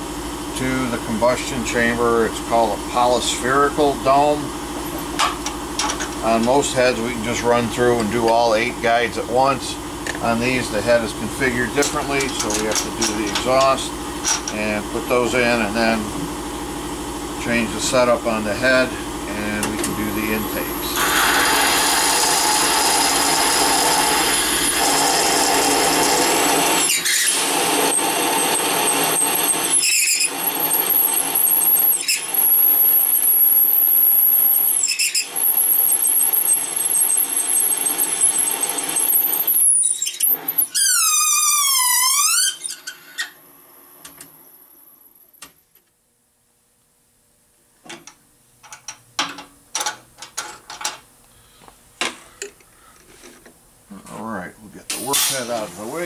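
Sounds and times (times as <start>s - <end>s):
machine spindle cutting metal: 10.2s - 15.6s, 19.8s - 40.7s
motor winding down whine: 18.8s - 42.7s.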